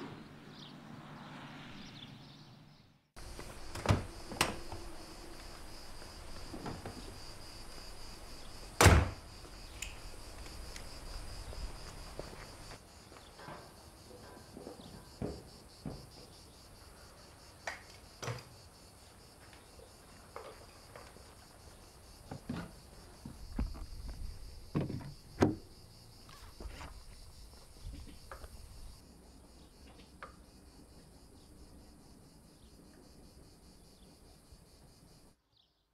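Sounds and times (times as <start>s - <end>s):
footsteps on concrete: 5.3s - 8.0s, 9.4s - 13.3s, 23.2s - 24.5s.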